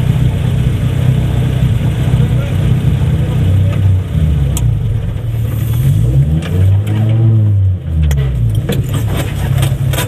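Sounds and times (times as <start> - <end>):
race car engine idling: 0.0 - 6.0.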